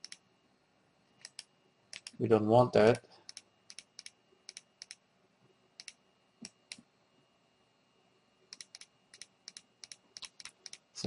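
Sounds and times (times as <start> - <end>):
mouse and keyboard clicks: 1.2 - 2.2, 8.5 - 10.8.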